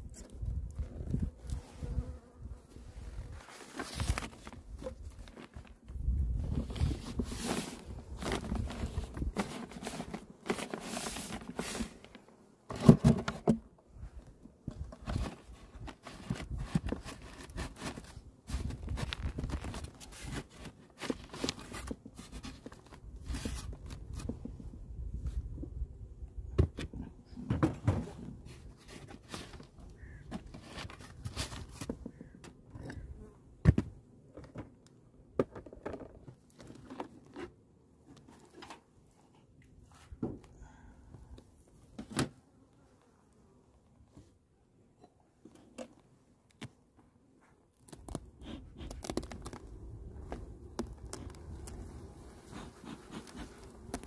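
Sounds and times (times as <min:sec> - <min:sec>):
scraping and rustling of hive cover: 0:00.8 - 0:13.6, 0:14.9 - 0:24.5, 0:27.8 - 0:32.2, 0:47.9 - 0:54.0.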